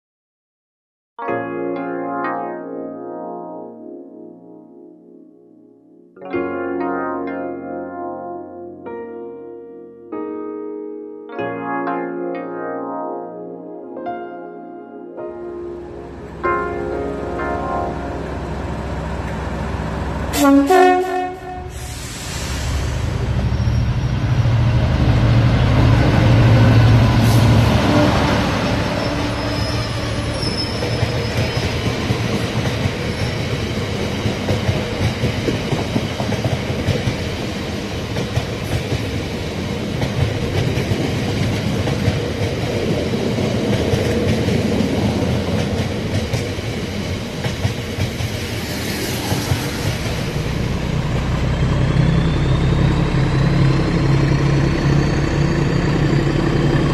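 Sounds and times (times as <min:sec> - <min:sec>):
model locomotive drone: 0:44.0 - 0:56.9.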